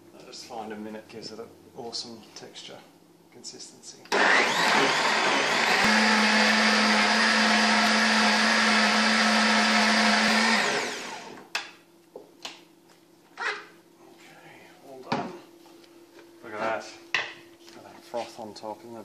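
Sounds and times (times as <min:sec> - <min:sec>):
blender running: 0:04.1 - 0:11.5.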